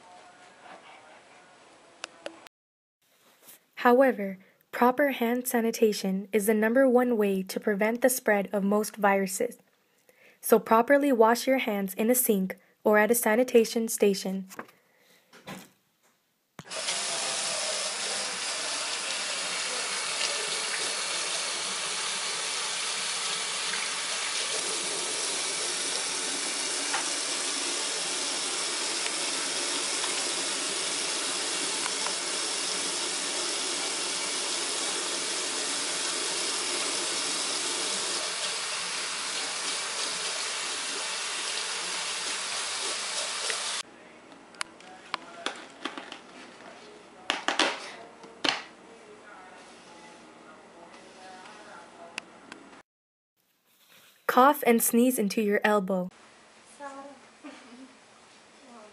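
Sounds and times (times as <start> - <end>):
faucet water running over hands: 16.6 - 43.8.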